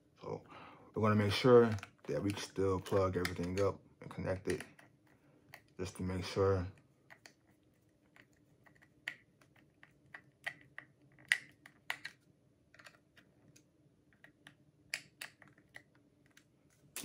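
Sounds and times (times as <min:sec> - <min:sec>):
faint steady hum: 0:00.0 - 0:17.0
clicks and taps of handling: 0:01.6 - 0:05.8, 0:06.7 - 0:16.5.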